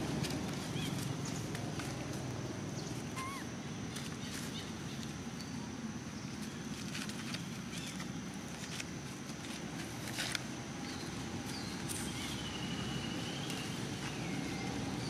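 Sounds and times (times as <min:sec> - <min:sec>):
dry leaves rustling and crackling: 0:00.0 - 0:05.2, 0:06.3 - 0:15.0
low background noise: 0:00.0 - 0:15.0.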